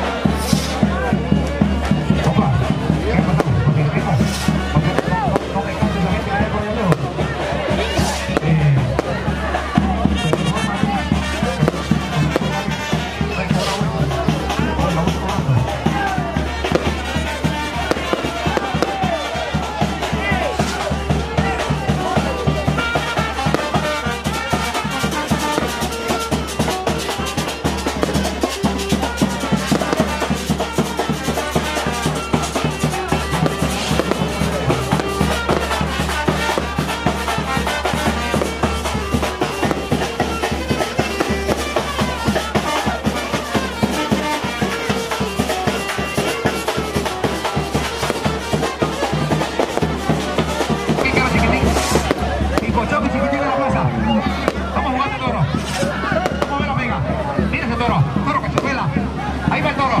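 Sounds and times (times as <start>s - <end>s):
steady drum beat: 0.0s - 60.0s
trumpet: 0.0s - 60.0s
saxophone: 9.8s - 14.8s.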